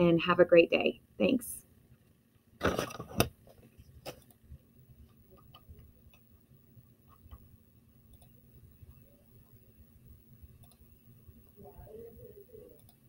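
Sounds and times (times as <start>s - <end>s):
handling noise: 2.6s - 4.3s
computer mouse clicks: 8.1s - 8.4s, 10.6s - 10.9s.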